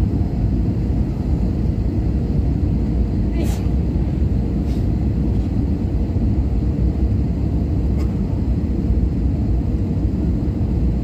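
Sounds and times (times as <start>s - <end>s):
airliner cabin rumble and hum: 0.0s - 11.0s.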